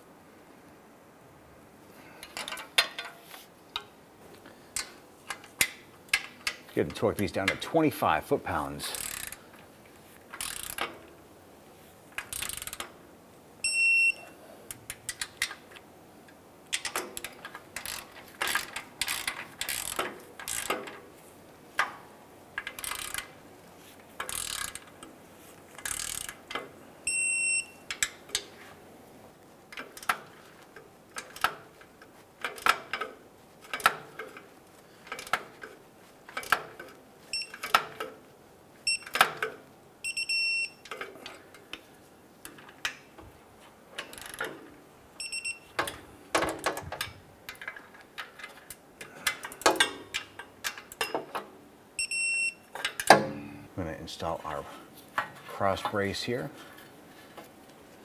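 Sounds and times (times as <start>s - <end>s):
torque wrench ratchet clicking: 8.9s - 9.4s, 10.4s - 10.9s, 12.2s - 12.8s, 16.7s - 20.8s, 22.6s - 23.3s, 24.2s - 24.9s, 25.8s - 26.4s
short electronic beep: 52.0s - 52.6s.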